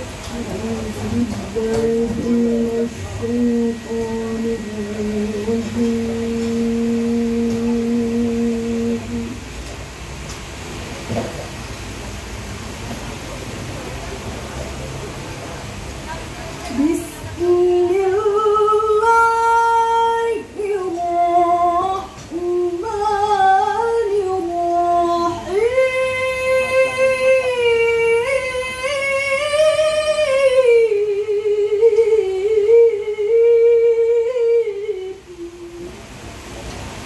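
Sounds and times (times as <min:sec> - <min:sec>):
woman reciting melodically: 0:00.0 - 0:09.5, 0:16.5 - 0:36.1.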